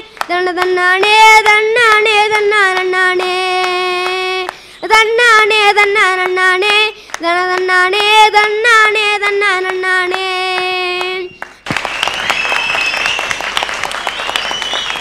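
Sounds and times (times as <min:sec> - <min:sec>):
boy singing into a microphone: 0:00.0 - 0:11.6
audience applause: 0:11.4 - 0:15.0.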